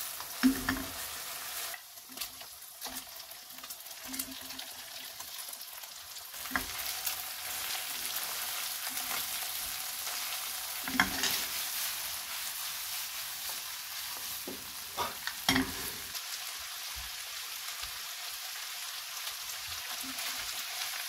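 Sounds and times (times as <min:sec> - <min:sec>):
food sizzling in a wok: 0:00.0 - 0:21.0
chopsticks knocking and scraping: 0:10.9 - 0:11.5.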